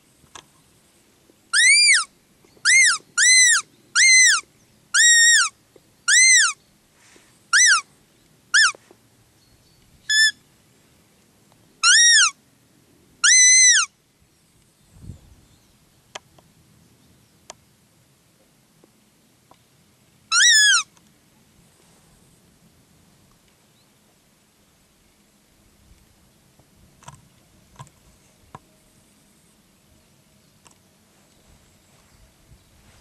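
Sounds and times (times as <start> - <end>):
high peeps of deer lure call: 1.5 - 6.6, 7.5 - 7.9, 8.6 - 8.8, 10.1 - 10.4, 11.8 - 12.4, 13.2 - 13.9, 20.3 - 20.9.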